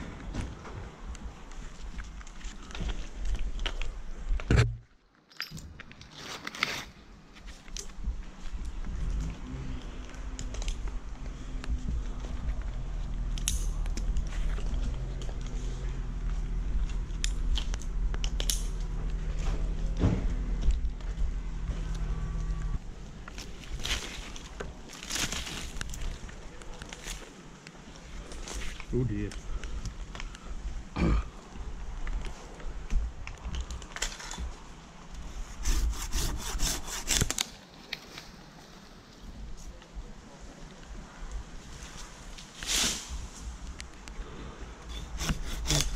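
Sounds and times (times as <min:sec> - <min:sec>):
climbing gear clicking on bark: 0:07.6 - 0:24.7, 0:44.9 - 0:45.9
steady low hum: 0:07.9 - 0:24.9
pruning saw cutting branch: 0:35.5 - 0:37.5, 0:44.9 - 0:45.9.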